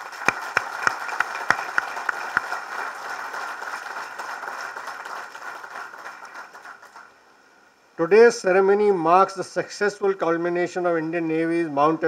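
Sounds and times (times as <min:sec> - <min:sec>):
audience applauding: 0:00.0 - 0:07.1
sharp close claps: 0:00.0 - 0:07.1.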